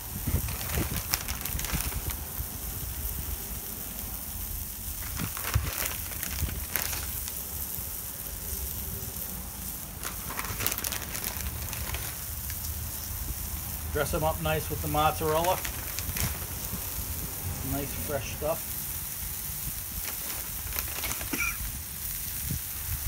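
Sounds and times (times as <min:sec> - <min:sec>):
plastic bag rustling: 0:00.0 - 0:03.0, 0:04.8 - 0:07.8, 0:09.8 - 0:13.0, 0:13.9 - 0:23.0
chicken sizzling on griddle: 0:00.0 - 0:23.0.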